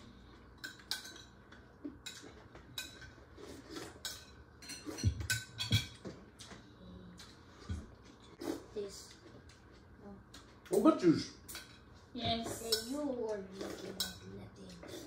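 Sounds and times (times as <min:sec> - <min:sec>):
cutlery clinking on plates: 0:00.4 - 0:06.6, 0:13.6 - 0:15.0.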